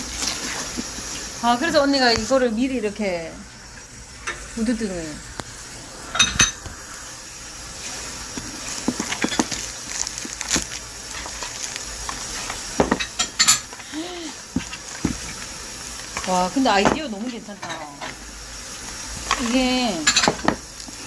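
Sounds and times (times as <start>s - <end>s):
plastic film crinkling: 7.4s - 17.5s, 18.7s - 21.0s.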